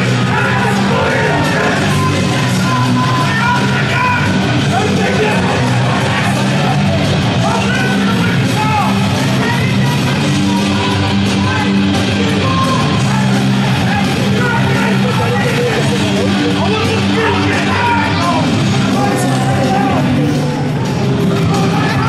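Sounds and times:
singing: 0.0 - 8.5
loud music with bass line: 0.0 - 22.0.

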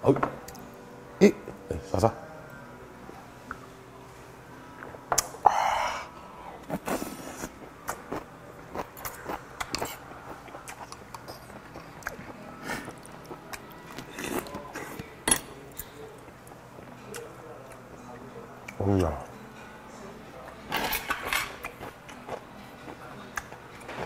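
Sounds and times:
chewing: 6.7 - 15.1.

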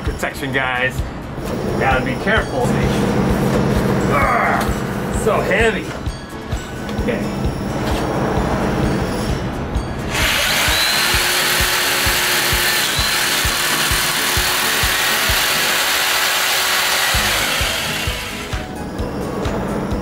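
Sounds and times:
background music with beat: 4.6 - 15.6, 17.1 - 20.0
electric jigsaw cutting pipe: 10.1 - 18.8.

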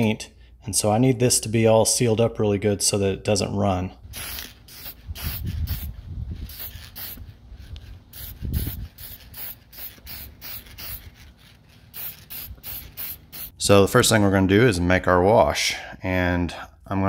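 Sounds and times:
aerosol can spraying bursts: 4.1 - 13.6.

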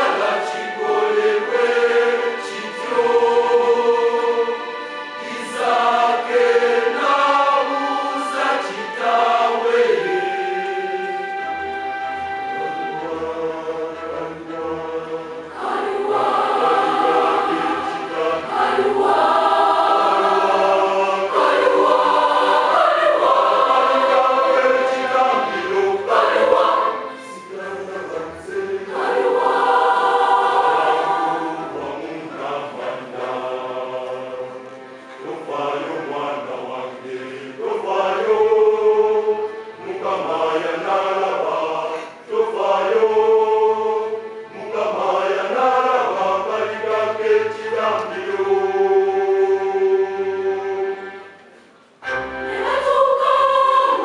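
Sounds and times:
children's choir singing: 0.0 - 54.0.

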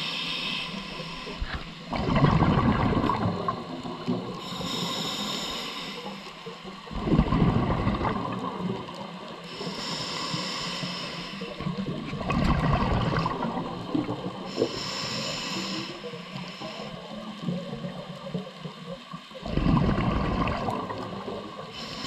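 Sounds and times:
regulator inhalation hiss: 0.0 - 1.9, 4.4 - 6.5, 9.4 - 11.7, 14.4 - 17.2, 21.6 - 22.0
exhaled bubbles underwater: 0.8 - 10.5, 11.4 - 22.0.

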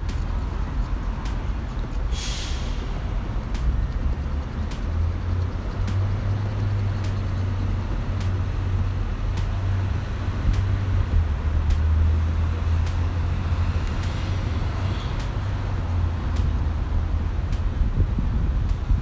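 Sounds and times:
cars driving past: 0.0 - 19.0
faint ticks: 3.5 - 7.5, 16.3 - 16.6.

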